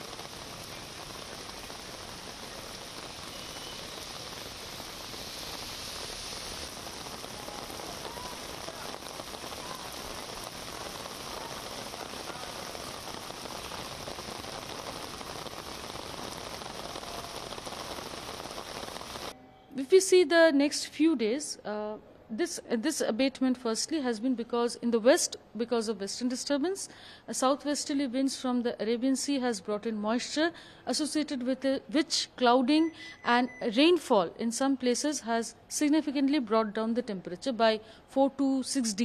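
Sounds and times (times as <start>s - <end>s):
heavy rain on pavement: 0.0s - 19.3s.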